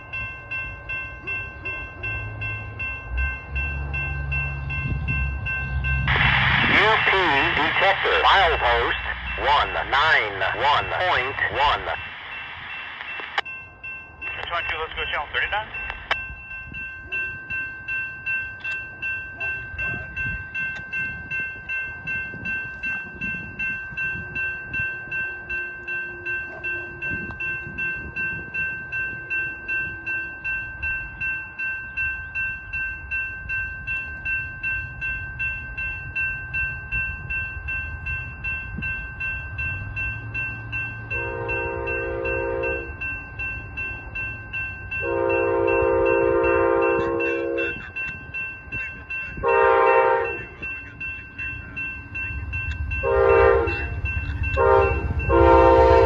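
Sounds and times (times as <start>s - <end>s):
train rumble: 0.0s - 56.0s
locomotive air horn: 41.2s - 42.9s, 45.0s - 47.8s, 49.4s - 50.5s, 53.0s - 53.9s, 54.6s - 56.0s.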